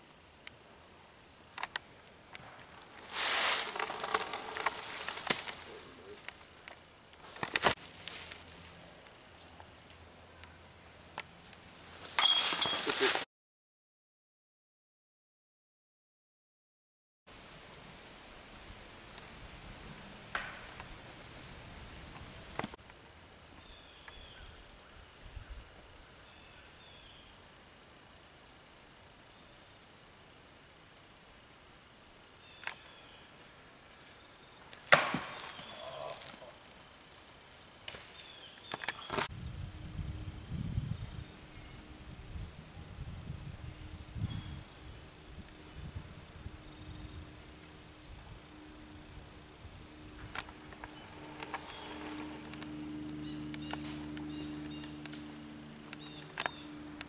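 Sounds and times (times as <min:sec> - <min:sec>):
woodland ambience: 0:00.0 - 0:13.2, 0:17.3 - 0:57.0
dry leaves crunching underfoot: 0:02.6 - 0:06.3, 0:07.2 - 0:09.6, 0:11.9 - 0:13.2, 0:50.7 - 0:52.8.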